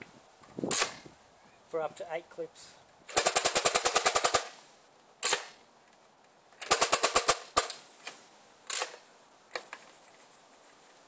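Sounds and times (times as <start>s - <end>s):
toy blaster firing rapid puffs: 3.1s - 4.6s, 6.6s - 7.8s.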